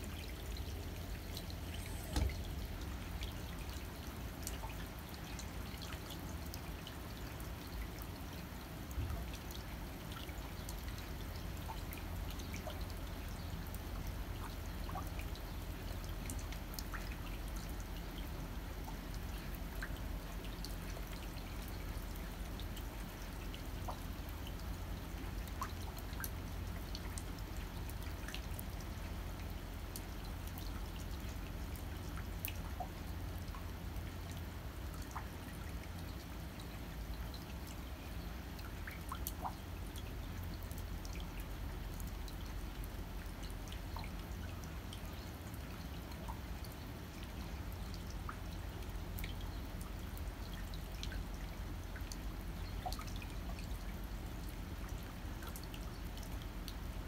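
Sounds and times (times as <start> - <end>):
sharp drips: 0.0 - 57.0
rain hissing: 0.1 - 3.2.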